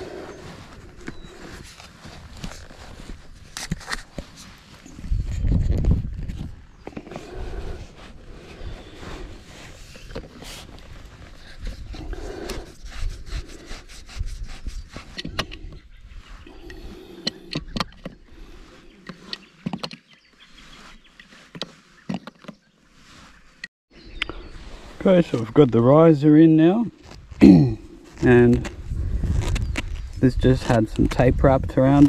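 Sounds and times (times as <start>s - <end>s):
plastic pipe fitting creaking: 1.0s - 7.4s, 16.6s - 18.2s, 28.2s - 31.2s.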